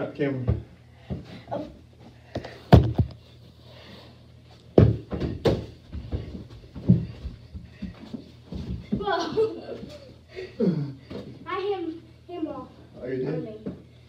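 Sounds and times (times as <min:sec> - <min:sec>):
feet landing on floor: 0:02.4 - 0:03.2, 0:04.7 - 0:09.4.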